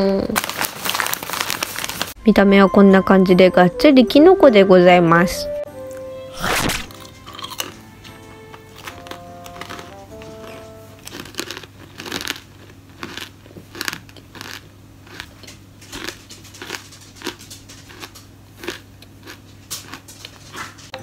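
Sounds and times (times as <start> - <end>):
chewing crunchy crisps: 0.2 - 2.2, 6.4 - 20.9.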